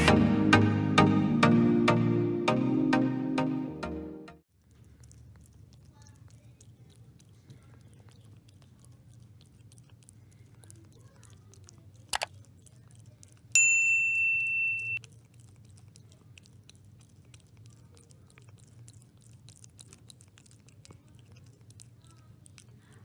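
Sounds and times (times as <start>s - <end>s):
cat chewing and lapping: 4.5s - 23.0s
bell-like ding: 13.6s - 15.0s.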